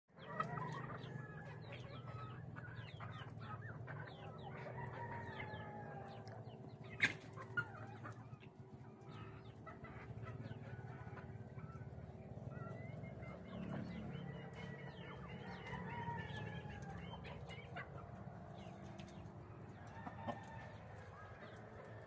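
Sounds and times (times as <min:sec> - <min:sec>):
chickens clucking: 0:00.1 - 0:22.0
rooster crowing: 0:04.6 - 0:06.3.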